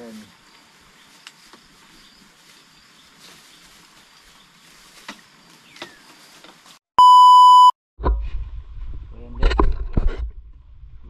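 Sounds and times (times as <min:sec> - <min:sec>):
electronic beep: 0:07.0 - 0:07.7.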